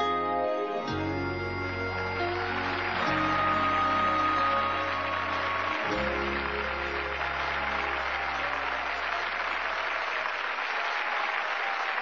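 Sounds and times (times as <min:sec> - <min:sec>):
low note of backing music: 0:00.0 - 0:09.2
audience applauding: 0:00.9 - 0:12.0.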